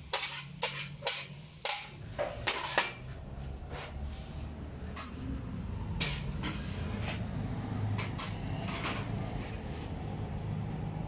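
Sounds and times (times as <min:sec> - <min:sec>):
metal utensils scraping a griddle: 0:00.0 - 0:04.3, 0:06.0 - 0:07.3, 0:08.0 - 0:09.9.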